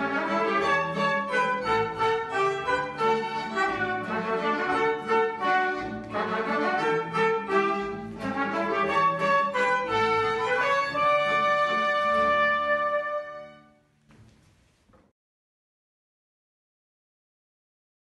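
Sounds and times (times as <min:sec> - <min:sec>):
button accordion: 0:00.0 - 0:12.3
guitar: 0:00.0 - 0:13.8
trumpet: 0:00.0 - 0:13.9
violin: 0:00.0 - 0:13.9.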